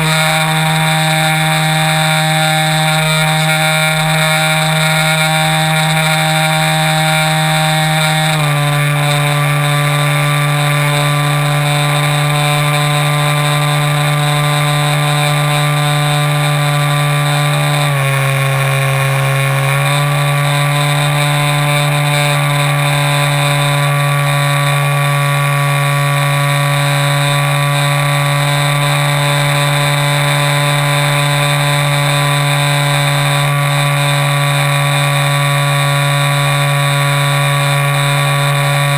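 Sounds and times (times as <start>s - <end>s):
model airplane propeller drone: 0.0s - 38.9s.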